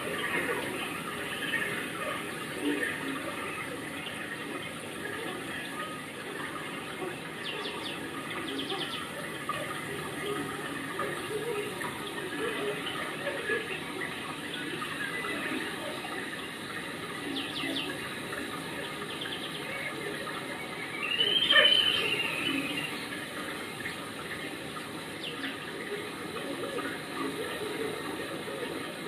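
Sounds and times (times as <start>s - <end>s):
running water: 0.0s - 29.0s
steady rain: 0.0s - 29.0s.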